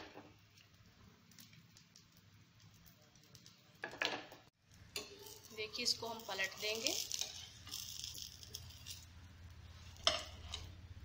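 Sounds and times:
oil sizzling and crackling: 0:00.0 - 0:11.0.

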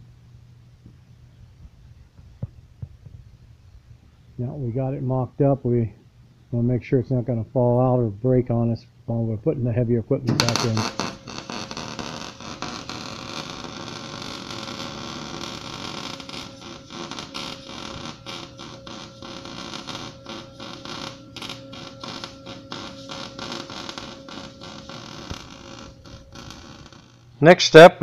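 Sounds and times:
arc welding crackle: 0:10.3 - 0:27.4.

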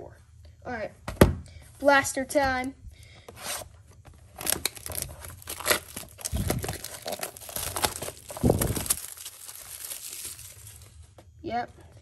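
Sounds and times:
cellophane packs crinkling: 0:04.3 - 0:11.1.

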